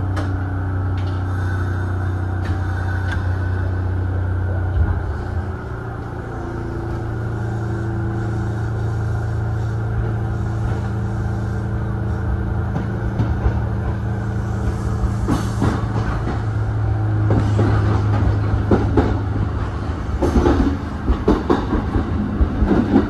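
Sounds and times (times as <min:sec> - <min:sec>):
electric train hum: 0:00.0 - 0:23.0
wheels clicking on rails: 0:12.2 - 0:23.0.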